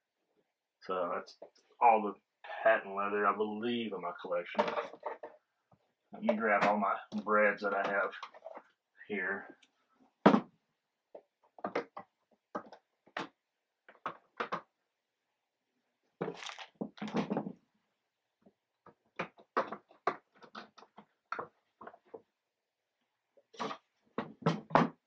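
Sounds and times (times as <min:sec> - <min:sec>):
plastic box knocks and clacks: 0:11.1 - 0:14.7, 0:16.2 - 0:17.6, 0:18.8 - 0:22.3, 0:23.6 - 0:25.0
shuffling and handling: 0:16.2 - 0:17.1.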